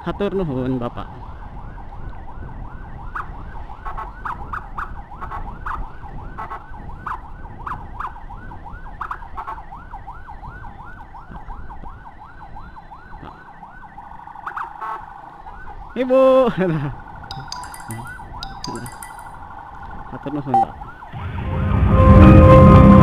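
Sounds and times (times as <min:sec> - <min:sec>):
electronic siren yelping: 0:14.3 - 0:15.8.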